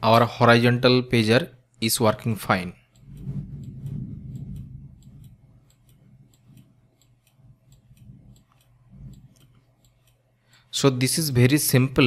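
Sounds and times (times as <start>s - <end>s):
low steady hum: 0.0s - 12.0s
faint clicks: 2.8s - 10.7s.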